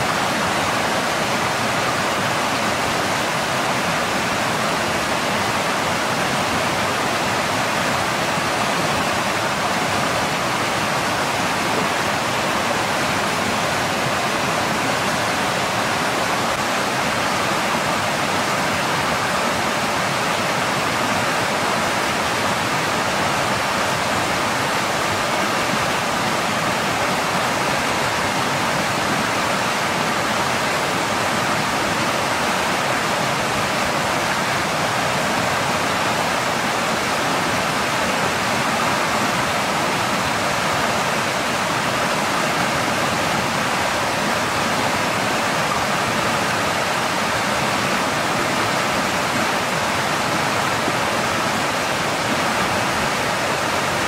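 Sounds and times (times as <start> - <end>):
stream running over rocks: 0.0 - 54.0.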